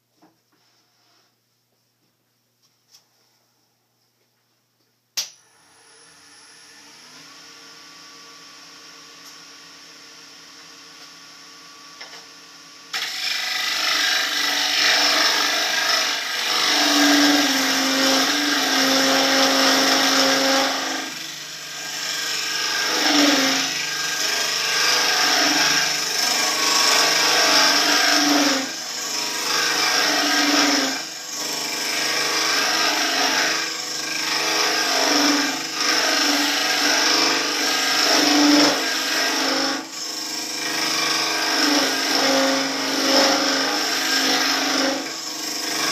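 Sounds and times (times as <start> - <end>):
lathe tool cutting wood: 5.5 - 45.9.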